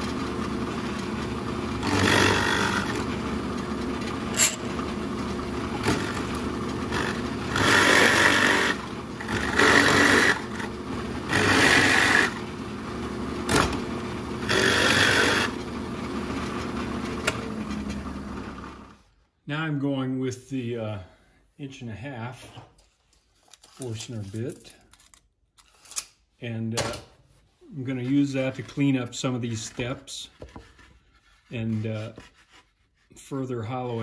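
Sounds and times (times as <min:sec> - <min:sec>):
drill press motor hum: 0:00.0 - 0:19.0
drill bit cutting into wood: 0:01.8 - 0:03.1, 0:05.8 - 0:06.3, 0:06.9 - 0:10.7, 0:11.3 - 0:12.4, 0:14.4 - 0:15.6.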